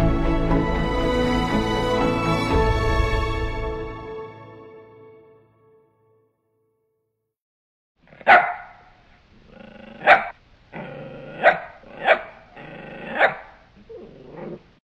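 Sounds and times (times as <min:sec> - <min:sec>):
dog growling: 0:08.0 - 0:08.5, 0:09.3 - 0:14.8
dog barking: 0:08.1 - 0:09.0, 0:09.9 - 0:13.6.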